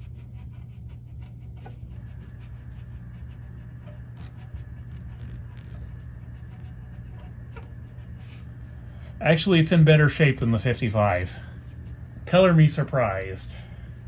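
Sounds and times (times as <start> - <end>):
swab scrubbing tape heads: 0.0 - 8.6
low hum: 0.0 - 14.0.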